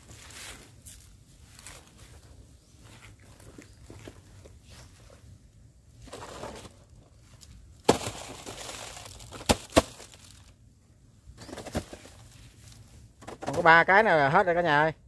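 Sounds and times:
plastic sack crinkling: 7.9s - 10.5s.

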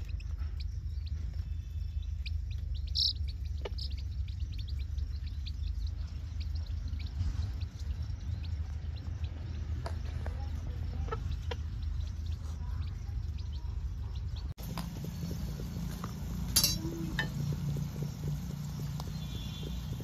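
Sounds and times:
chicks peeping: 0.0s - 20.0s
low steady hum: 0.0s - 20.0s
hen clucking: 2.2s - 7.7s, 9.2s - 14.5s
onions frying in a pan: 14.6s - 20.0s
sharp clatter: 14.6s - 20.0s.

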